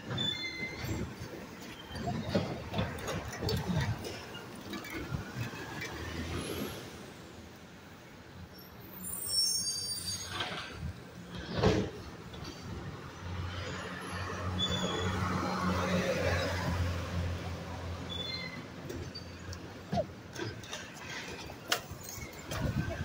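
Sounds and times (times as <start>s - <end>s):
high brake squeal: 0.0s - 2.4s, 8.5s - 10.9s, 13.6s - 15.7s, 18.0s - 21.2s.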